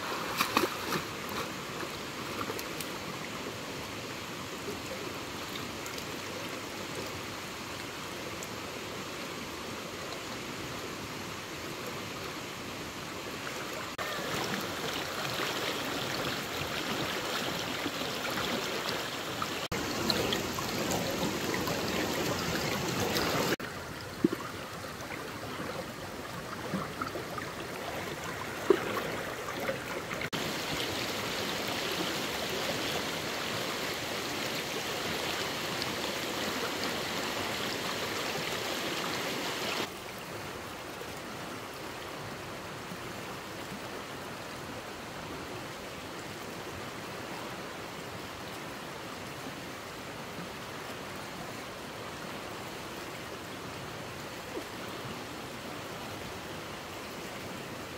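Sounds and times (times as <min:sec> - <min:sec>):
knocks or splashes: 0:00.0 - 0:02.6
rushing stream water: 0:00.0 - 0:57.9.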